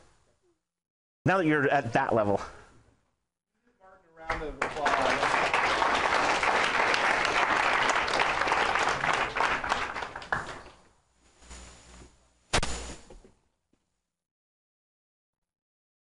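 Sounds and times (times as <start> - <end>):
audience applauding: 4.2 - 10.8.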